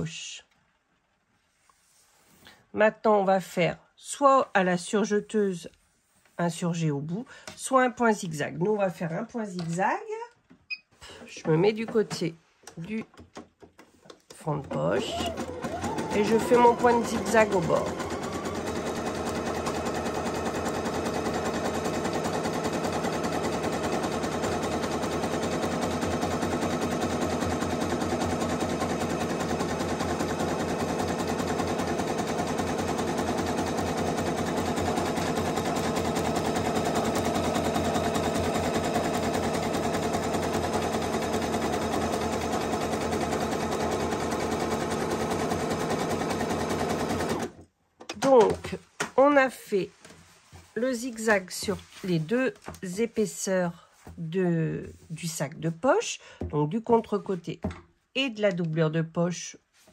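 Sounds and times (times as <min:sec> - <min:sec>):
sewing machine running: 0:14.6 - 0:47.6.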